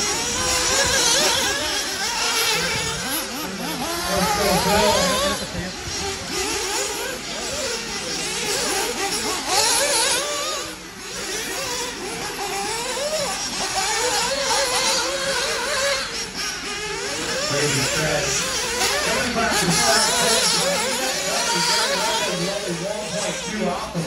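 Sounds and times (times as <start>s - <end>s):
small engines whining: 0.0s - 24.0s.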